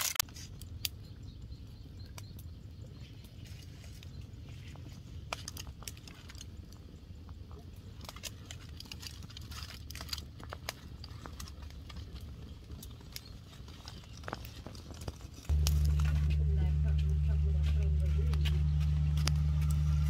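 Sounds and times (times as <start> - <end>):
aluminium foil crinkling: 0.0 - 0.7, 3.1 - 6.9, 7.5 - 20.0
wood fire crackling: 0.0 - 20.0
fire pops and snaps: 4.8 - 17.2.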